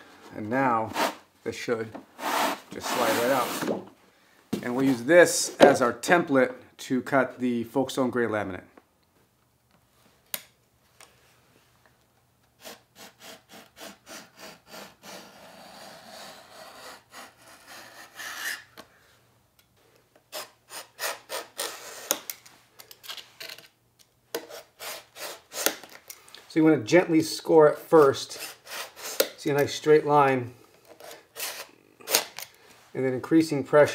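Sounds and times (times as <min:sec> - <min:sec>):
utility knife scoring laminate: 0:00.9 - 0:01.3, 0:02.2 - 0:03.8, 0:12.6 - 0:18.8, 0:20.3 - 0:22.5, 0:24.3 - 0:26.1, 0:28.0 - 0:29.8.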